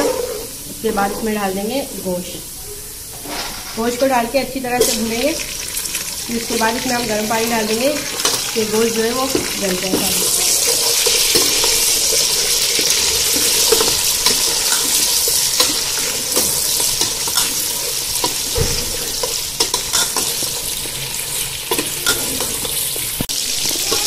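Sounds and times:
meat sizzling in oil: 0:03.7 - 0:24.0
ladle scraping pot: 0:08.1 - 0:23.2.

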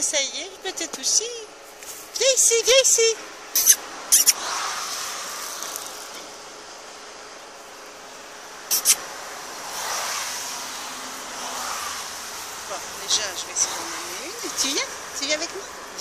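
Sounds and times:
cars passing: 0:00.0 - 0:16.0
short sharp clicks: 0:08.7 - 0:09.0.

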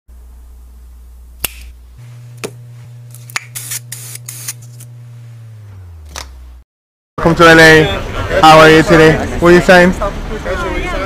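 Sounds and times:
low steady hum: 0:00.1 - 0:06.6
sharp snaps: 0:01.4 - 0:01.8, 0:03.2 - 0:04.6.

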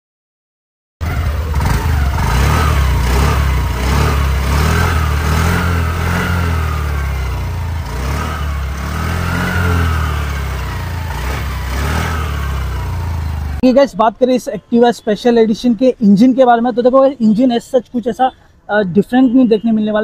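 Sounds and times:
scooter engine idling and revving: 0:01.0 - 0:13.6.

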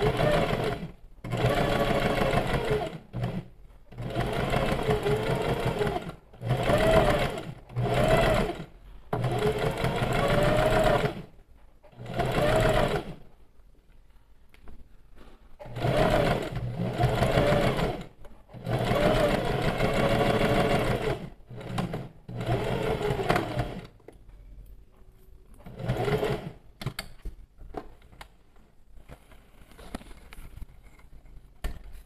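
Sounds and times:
sewing machine stitching: 0:00.0 - 0:13.2, 0:15.6 - 0:24.0, 0:25.6 - 0:26.7.

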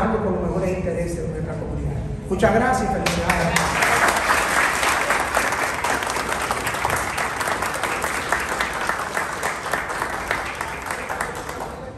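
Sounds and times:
audience applauding: 0:03.0 - 0:11.9.

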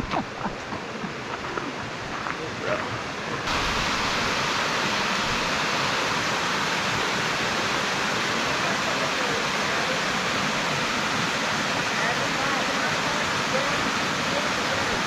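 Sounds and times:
water falling from flume: 0:03.4 - 0:15.0.

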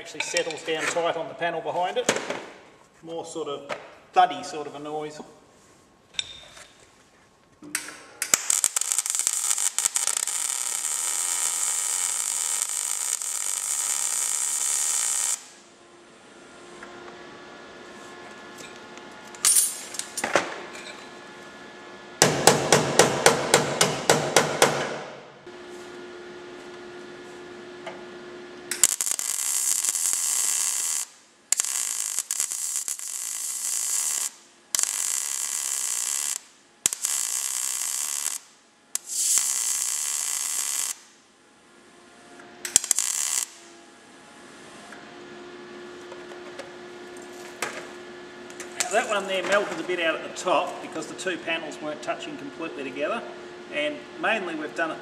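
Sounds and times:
welding arc crackling and hissing: 0:08.2 - 0:15.7, 0:28.7 - 0:41.2, 0:42.6 - 0:43.7.

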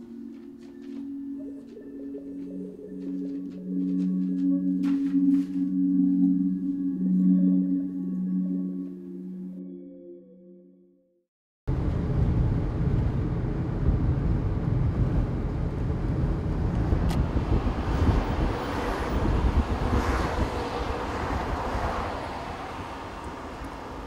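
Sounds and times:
car interior road and engine noise: 0:11.7 - 0:24.0.

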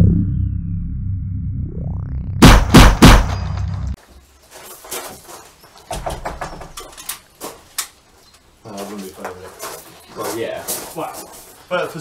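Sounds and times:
sound effect drone: 0:00.0 - 0:04.0
clicks and knocks handling rifle: 0:04.8 - 0:08.4.

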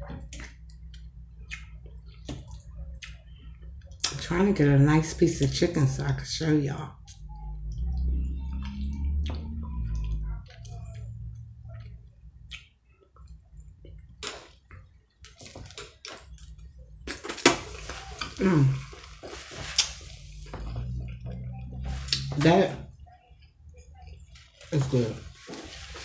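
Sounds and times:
wet chewing and slurping: 0:14.4 - 0:22.4.

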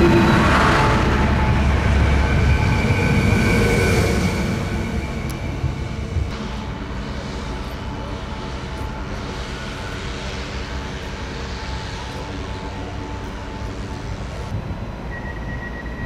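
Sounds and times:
train diesel engine hum: 0:00.0 - 0:16.0
hiss: 0:06.3 - 0:14.5.

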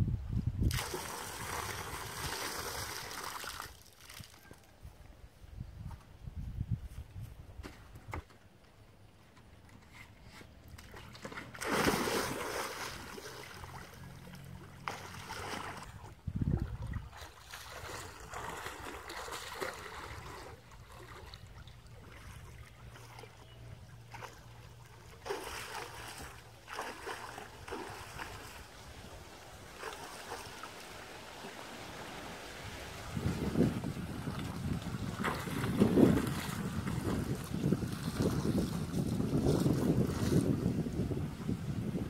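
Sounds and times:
water splashing and sloshing: 0:00.7 - 0:04.6, 0:09.4 - 0:41.6.

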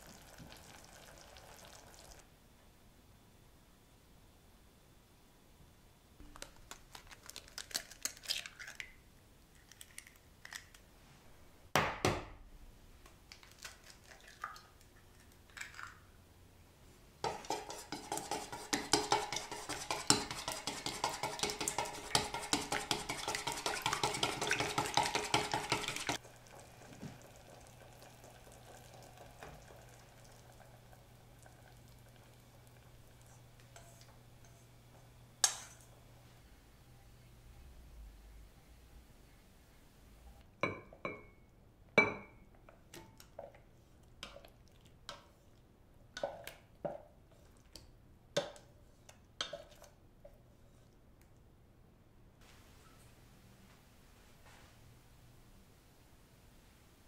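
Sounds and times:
chopsticks beating eggs in metal bowl: 0:17.2 - 0:26.6, 0:48.4 - 0:50.8.

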